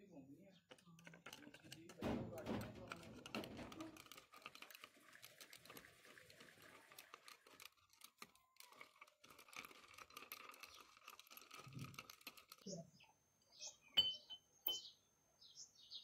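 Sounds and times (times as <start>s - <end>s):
bubbles fizzing in acid: 4.6s - 7.6s.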